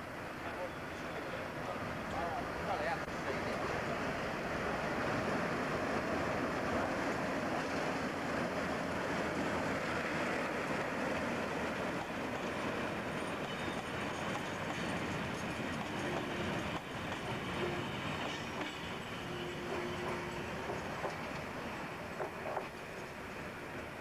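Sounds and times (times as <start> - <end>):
diesel locomotive engine running: 0.0 - 24.0
wheels clicking over rail joints: 10.1 - 23.2.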